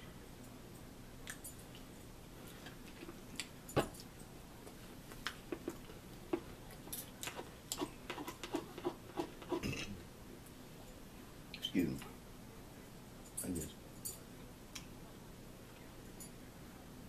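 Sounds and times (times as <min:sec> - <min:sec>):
fork scraping a bowl: 0:07.2 - 0:09.9.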